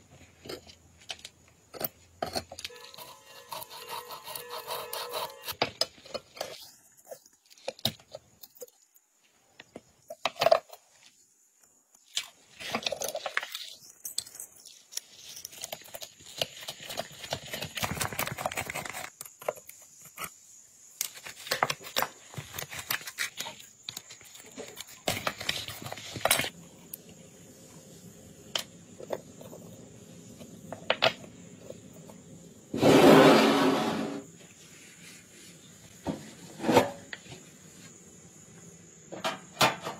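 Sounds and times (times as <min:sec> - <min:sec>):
steel pick scraping rusty metal: 0:01.7 - 0:05.6.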